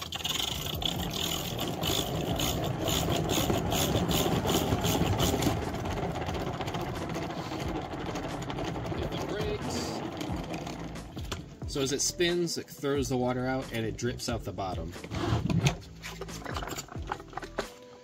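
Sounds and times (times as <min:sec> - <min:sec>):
salad spinner whirring: 0:00.0 - 0:11.8.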